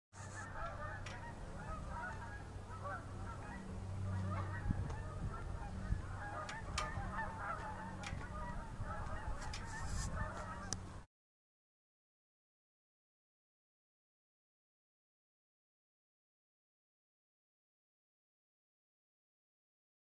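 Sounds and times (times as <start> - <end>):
fowl calling: 0.2 - 11.0
low steady hum: 0.2 - 11.0.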